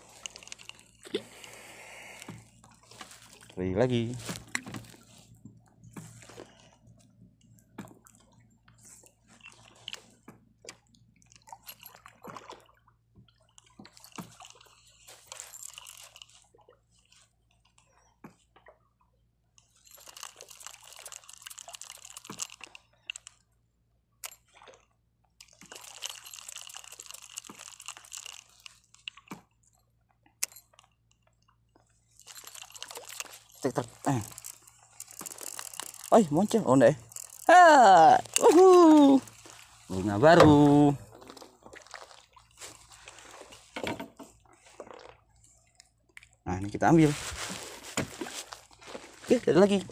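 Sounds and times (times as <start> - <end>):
fishing reel cranking: 19.9 - 23.4, 25.6 - 29.0, 32.2 - 38.6.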